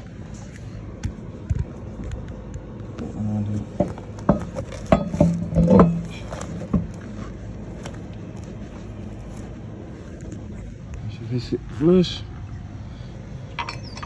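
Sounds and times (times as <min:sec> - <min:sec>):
wheel knocking against hub: 0:03.7 - 0:07.2.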